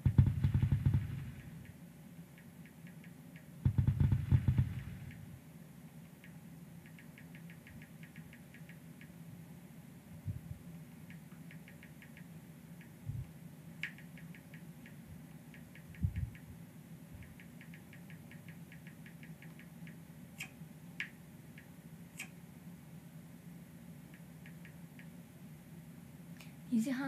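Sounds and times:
fingertip taps on touchscreen: 0:00.0 - 0:01.7, 0:02.4 - 0:05.2, 0:13.8 - 0:16.5
steady low hum: 0:00.0 - 0:27.0.

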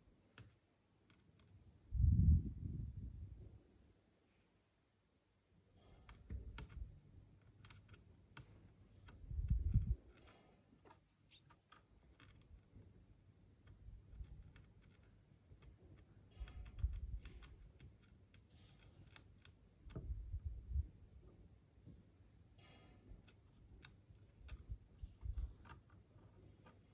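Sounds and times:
metal tool clicking on metal: 0:06.1 - 0:12.6, 0:13.7 - 0:20.0.

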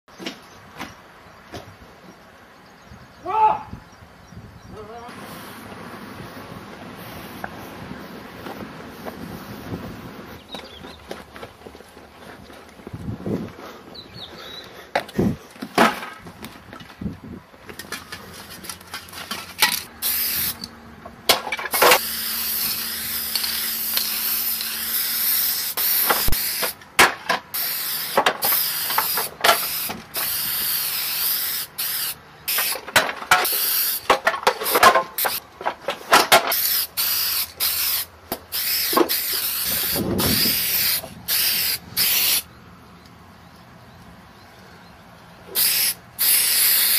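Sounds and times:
spray-paint can hissing: 0:20.0 - 0:20.7, 0:21.8 - 0:26.8, 0:27.5 - 0:32.8, 0:33.4 - 0:34.1, 0:36.5 - 0:42.5, 0:45.5 - 0:46.9.

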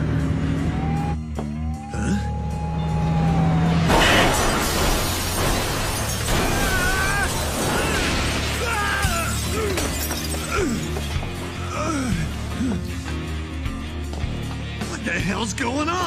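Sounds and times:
dramatic background music: 0:00.0 - 0:16.0
glass shattering: 0:03.8 - 0:11.6.

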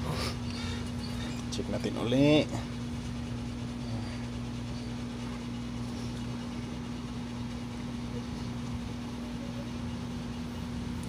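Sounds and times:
low electrical mains hum: 0:00.0 - 0:11.0.

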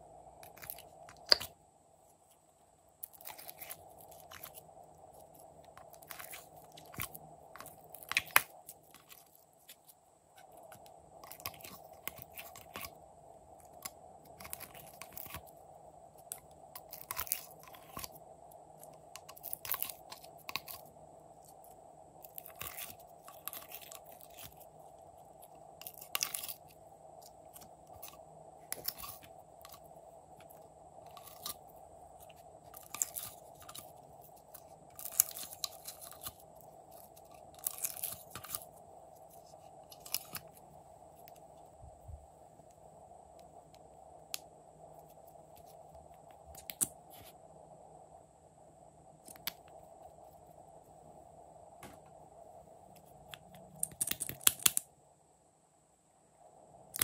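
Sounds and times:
faint steady hum: 0:00.0 - 0:57.0
sticky slime clicks and crackles: 0:53.8 - 0:54.8.

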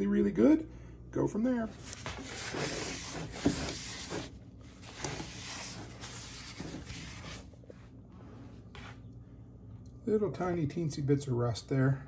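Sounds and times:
paper towel wiping a pan: 0:01.7 - 0:07.5.

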